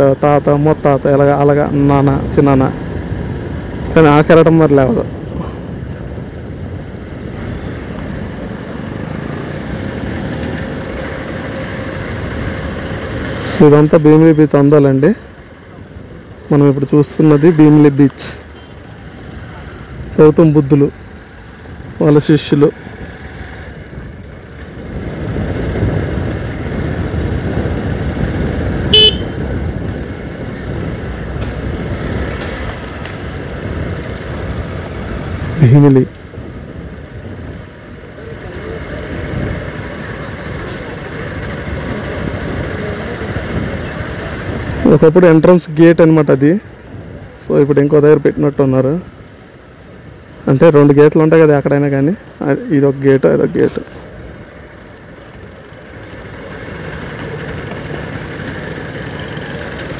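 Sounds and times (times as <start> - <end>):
motorcycle engine and wind rumble: 0.0 - 59.9
vehicle horn toot: 28.9 - 29.4
motorcycle engine running: 54.0 - 59.9.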